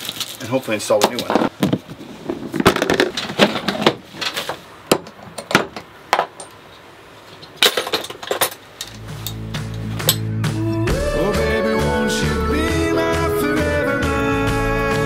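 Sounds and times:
music: 0:09.0 - 0:15.0.

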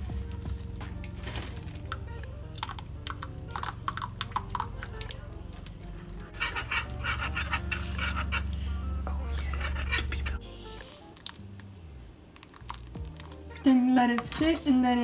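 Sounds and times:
background music with bass line: 0:00.0 - 0:11.9, 0:12.7 - 0:15.0
whisk rattling in metal saucepan: 0:06.4 - 0:08.5.

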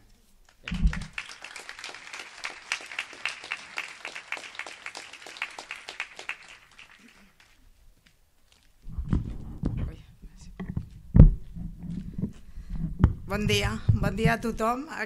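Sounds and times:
audience applauding: 0:00.6 - 0:07.6
low thump: 0:10.6 - 0:14.7.

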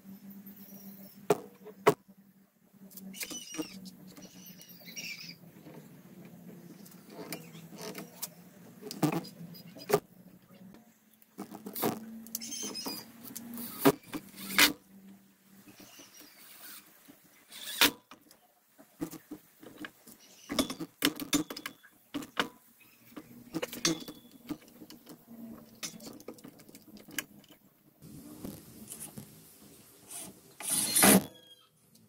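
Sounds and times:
tools and wood clattering: 0:15.7 - 0:27.7.

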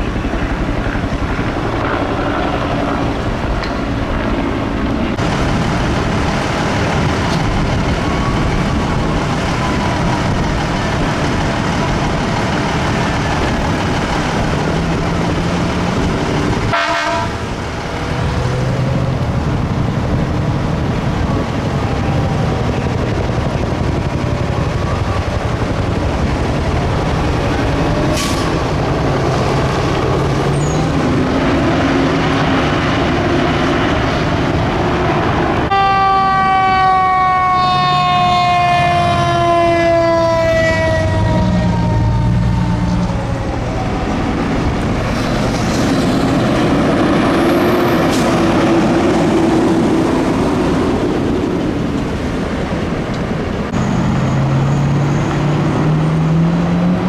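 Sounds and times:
distant sirens wailing: 0:00.0 - 0:45.5, 0:46.1 - 0:57.0
heavy traffic passing: 0:00.0 - 0:57.0
fire engine air horn blast: 0:16.7 - 0:17.6, 0:28.1 - 0:28.6, 0:35.7 - 0:43.0.

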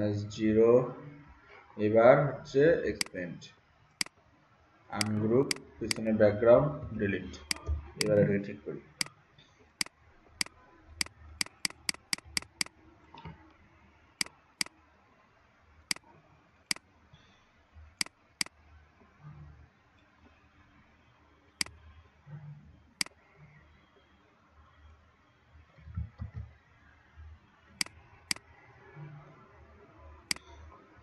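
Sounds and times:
computer mouse clicking: 0:05.0 - 0:06.0, 0:07.4 - 0:08.2, 0:09.8 - 0:12.8, 0:14.2 - 0:14.8, 0:30.3 - 0:30.6.

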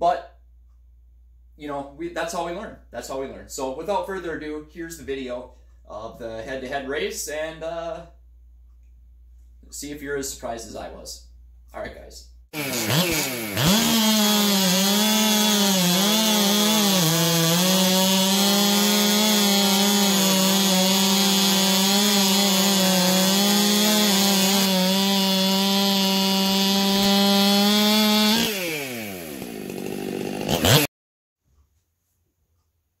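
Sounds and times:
chainsaw cutting log: 0:12.5 - 0:30.9.

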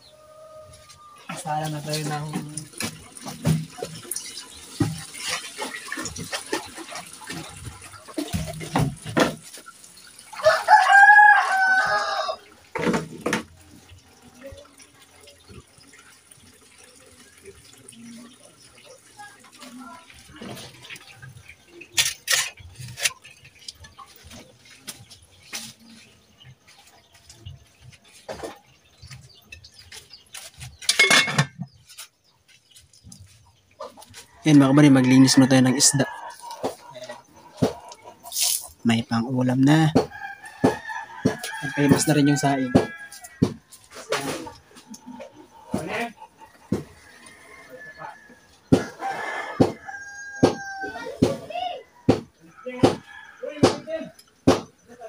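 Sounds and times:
water splashing in containers: 0:00.0 - 0:55.0
rooster crowing: 0:10.3 - 0:12.5, 0:34.4 - 0:36.8, 0:40.0 - 0:43.6, 0:46.6 - 0:51.1
metal lid clattering onto pot: 0:30.9 - 0:31.6.

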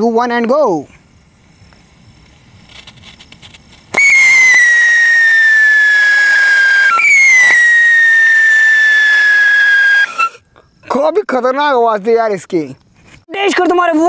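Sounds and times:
firework whistle falling in pitch: 0:04.0 - 0:10.4.

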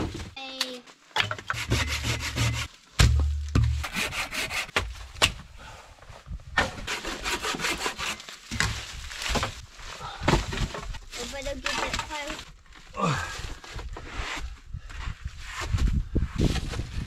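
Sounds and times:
wood knocking on wood: 0:01.2 - 0:04.1
wood scraping: 0:01.2 - 0:05.3, 0:06.6 - 0:09.6
leaves rustling: 0:07.8 - 0:10.2.

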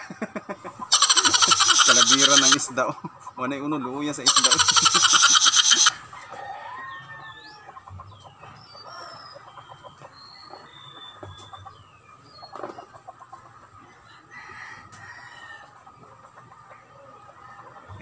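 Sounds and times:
chickens clucking: 0:00.0 - 0:18.0
rooster crowing: 0:00.9 - 0:02.6, 0:04.3 - 0:07.7, 0:14.3 - 0:15.7
small birds chirping: 0:00.9 - 0:02.9, 0:04.0 - 0:06.0, 0:07.4 - 0:13.1.

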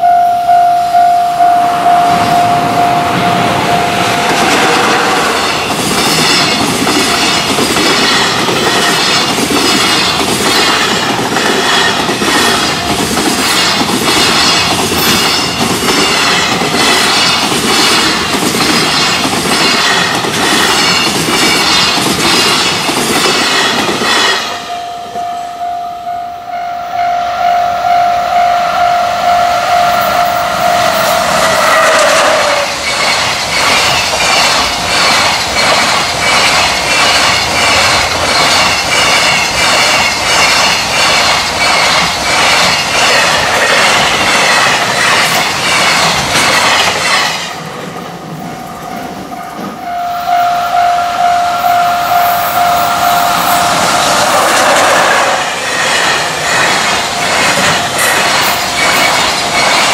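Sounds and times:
train wheels clattering over rail joints: 0:04.2 - 0:24.6, 0:31.3 - 0:49.8, 0:53.6 - 0:59.9
locomotive horn: 0:25.0 - 0:32.7, 0:49.8 - 0:54.0.

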